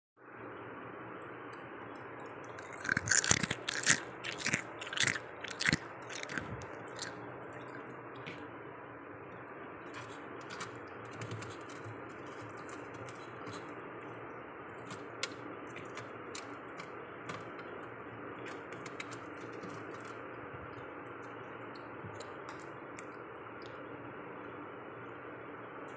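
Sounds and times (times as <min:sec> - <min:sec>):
steady background hum: 0:00.2 - 0:25.9
freezer ice crunching: 0:02.5 - 0:08.4.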